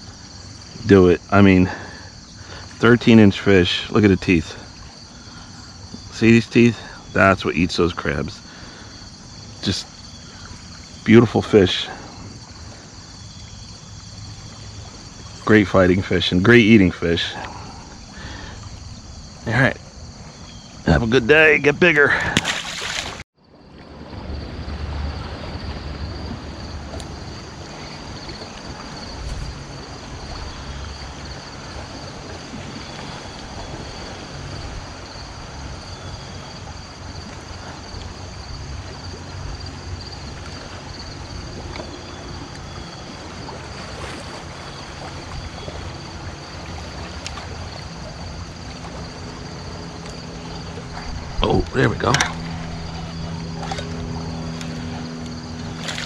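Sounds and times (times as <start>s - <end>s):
water lapping at bulkhead: 22.0s - 23.9s, 25.5s - 56.0s
wind buffeting microphone: 39.6s - 56.0s.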